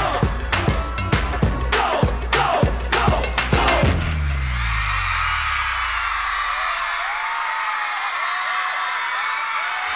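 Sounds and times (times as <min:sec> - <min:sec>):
audience screaming and cheering: 0:00.0 - 0:09.9
high whoops: 0:04.3 - 0:09.9.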